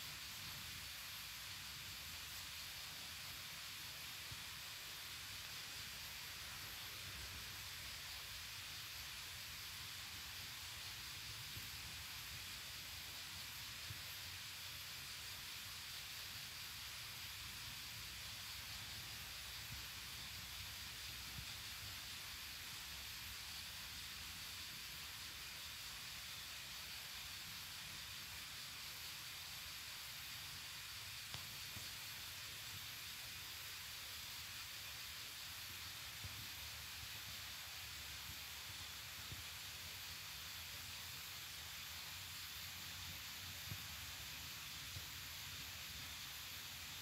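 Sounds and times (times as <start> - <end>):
heavy rain hiss: 0.0 - 47.0.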